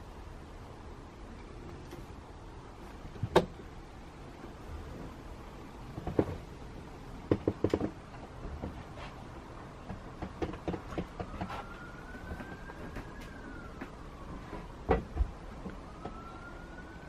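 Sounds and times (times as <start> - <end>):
light knocks and clicks: 9.8 - 14.0.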